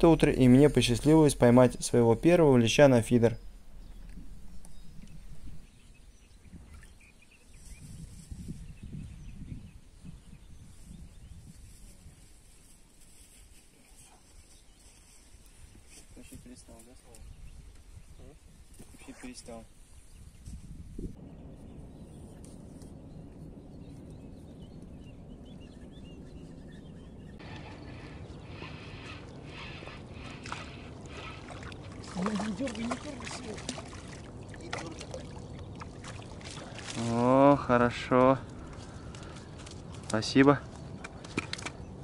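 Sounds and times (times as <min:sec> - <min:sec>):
birds chirping: 0:00.0 - 0:12.8, 0:13.8 - 0:42.0
wind buffeting microphone: 0:03.4 - 0:12.6, 0:16.4 - 0:37.1.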